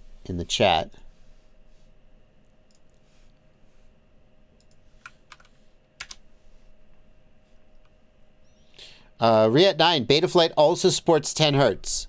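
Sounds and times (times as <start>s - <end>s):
keyboard keystrokes: 4.6s - 6.2s.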